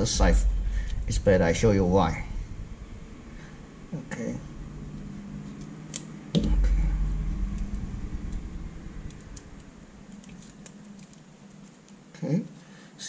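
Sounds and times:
low rumble: 0.0s - 12.2s
hands clicking and crinkling: 10.1s - 12.1s.

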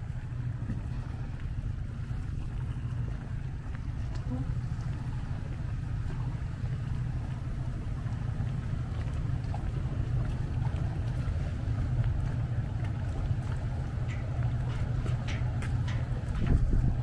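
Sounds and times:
low rumble of idling machinery: 0.0s - 17.0s.

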